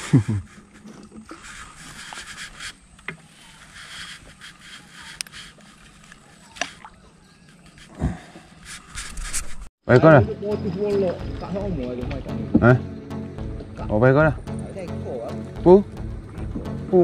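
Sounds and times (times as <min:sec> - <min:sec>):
fishing gear rustling: 0:00.0 - 0:09.7.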